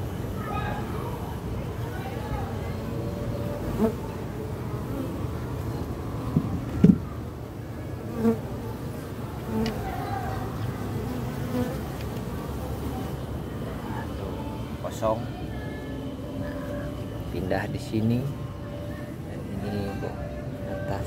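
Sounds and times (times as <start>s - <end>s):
bees buzzing: 3.0s - 6.5s, 10.7s - 13.5s.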